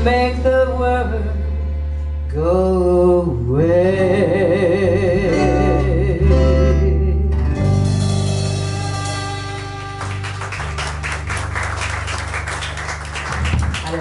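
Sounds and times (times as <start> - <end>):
woman singing: 0.0 - 1.4, 2.3 - 7.4
acoustic guitar: 0.0 - 11.4
upright bass: 0.0 - 14.0.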